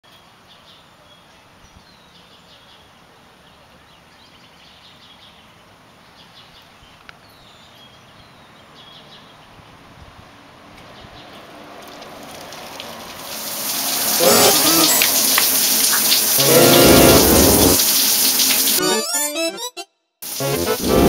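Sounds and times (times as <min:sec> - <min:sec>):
outdoor background noise: 0:00.0 - 0:16.6.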